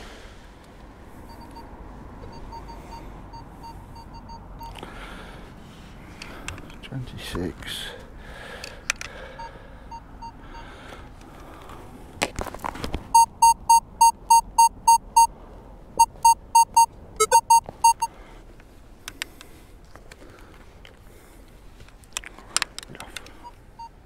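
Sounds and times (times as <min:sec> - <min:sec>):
metal detector high beeps: 0:13.2 - 0:15.3, 0:16.0 - 0:18.1.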